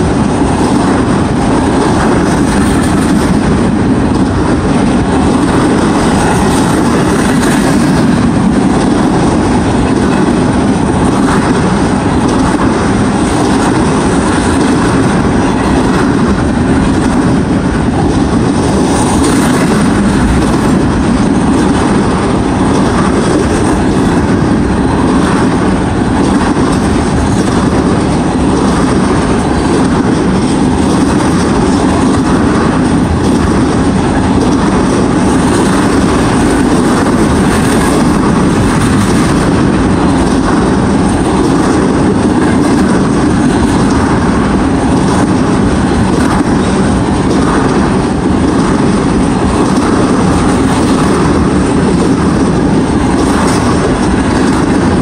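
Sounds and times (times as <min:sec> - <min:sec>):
freight train wheels rumbling on rails: 0:00.0 - 0:55.0.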